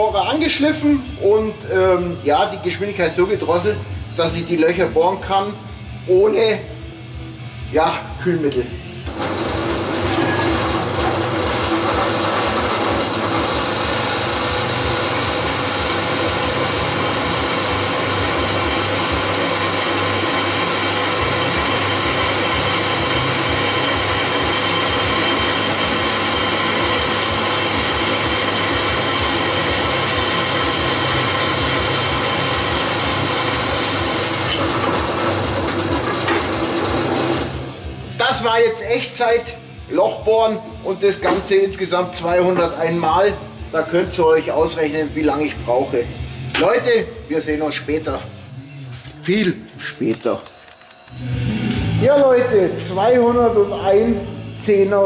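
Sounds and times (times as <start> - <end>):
drill press cutting metal: 9.0 - 38.2, 41.2 - 43.1.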